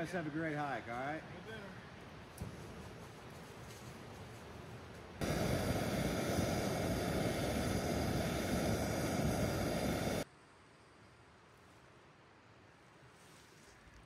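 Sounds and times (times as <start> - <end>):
loud steady rushing noise: 5.2 - 10.3.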